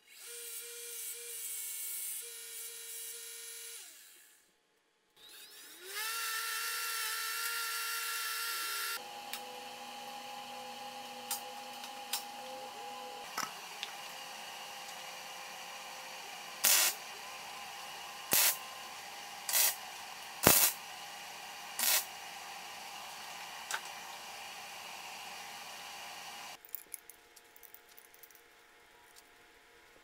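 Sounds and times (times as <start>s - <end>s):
welding crackling bursts: 16.6s - 17.0s, 18.3s - 18.6s, 19.5s - 19.8s, 20.4s - 20.8s, 21.8s - 22.1s.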